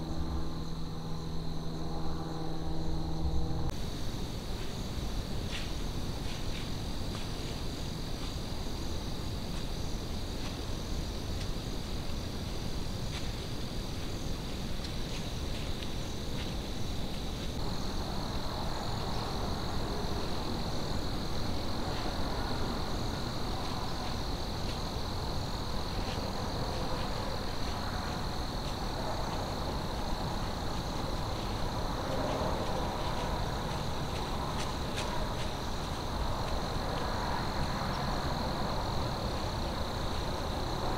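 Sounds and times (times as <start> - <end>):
low steady rumble: 0.0 - 5.3
crickets trilling: 0.0 - 40.9.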